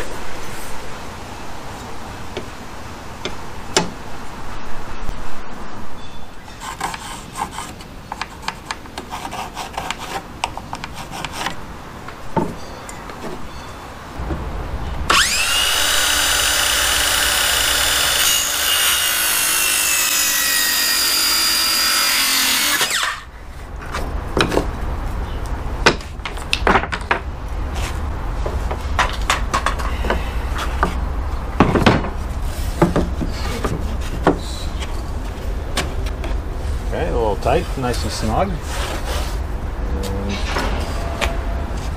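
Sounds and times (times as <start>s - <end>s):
low hum: 14.1s - 18.2s, 39.4s - 41.9s
power tool motor whine: 15.1s - 23.2s
boards knocking and scraping: 31.6s - 34.9s.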